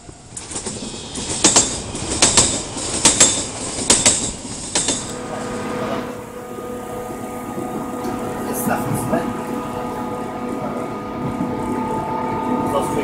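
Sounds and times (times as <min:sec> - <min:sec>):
train wheels clacking over rail joints: 0:00.0 - 0:05.1
train rolling rumble: 0:00.0 - 0:13.0.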